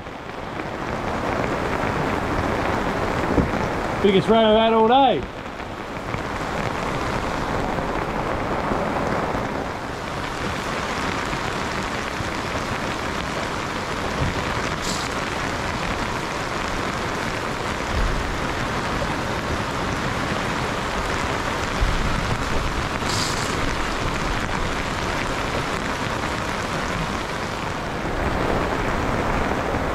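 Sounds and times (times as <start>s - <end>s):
rain on boat canopy: 0.0s - 29.9s
water splashing off canopy: 5.9s - 29.9s
dull low thumps: 17.8s - 18.6s.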